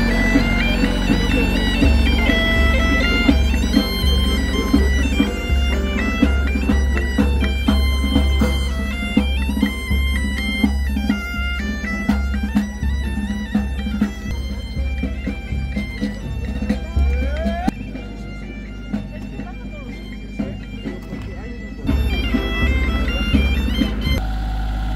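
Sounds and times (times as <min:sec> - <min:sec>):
bass drum beating: 0:00.0 - 0:17.8
bagpipe playing folk tune: 0:00.0 - 0:24.9.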